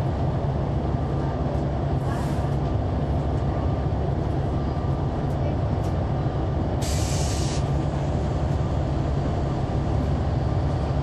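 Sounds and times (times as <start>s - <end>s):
bus diesel engine rumble: 0.0s - 11.0s
compressed air hiss: 6.8s - 7.7s.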